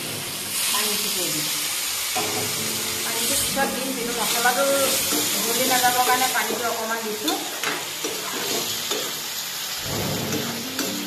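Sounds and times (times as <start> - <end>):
curry sizzling in a pan: 0.0 - 11.0
metal spatula scraping a pan: 7.3 - 9.2, 9.8 - 11.0.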